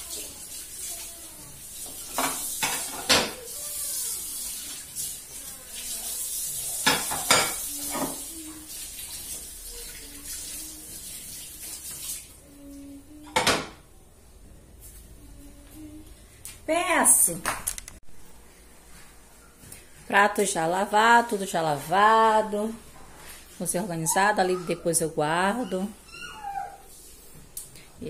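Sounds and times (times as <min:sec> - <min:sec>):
tap water running: 0:00.0 - 0:13.8
plates clattering in sink: 0:01.8 - 0:03.4, 0:06.8 - 0:08.3, 0:13.2 - 0:13.8.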